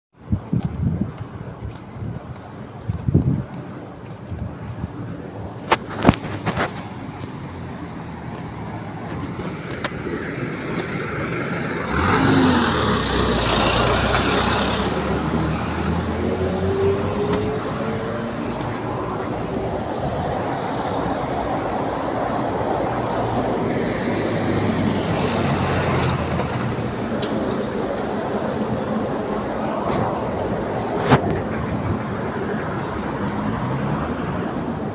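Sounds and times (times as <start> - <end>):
road traffic noise: 0.1 - 34.9
vehicle passing loudly: 8.8 - 27.1.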